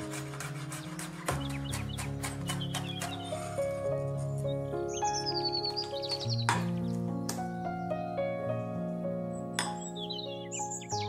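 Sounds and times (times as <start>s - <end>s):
knife chopping on wooden board: 0.0s - 3.6s
background music: 0.0s - 11.0s.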